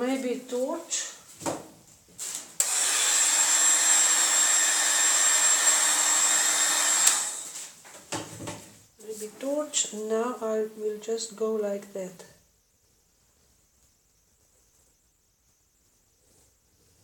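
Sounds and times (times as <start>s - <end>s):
heat tool blowing: 2.6s - 7.8s.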